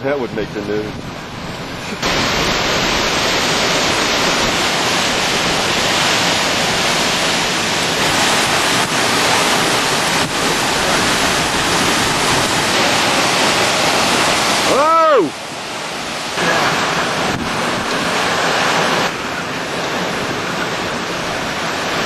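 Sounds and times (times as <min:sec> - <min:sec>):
driving rain: 0:00.0 - 0:22.0
hurricane wind: 0:00.0 - 0:22.0
wind buffeting microphone: 0:00.0 - 0:22.0.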